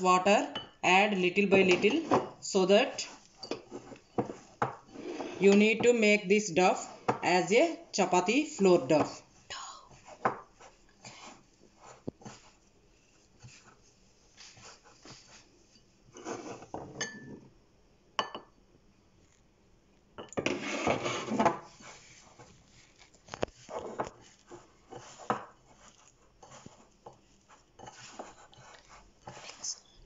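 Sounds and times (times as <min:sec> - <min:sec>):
hands kneading dough in a bowl: 0:06.6 - 0:16.8, 0:20.6 - 0:30.0.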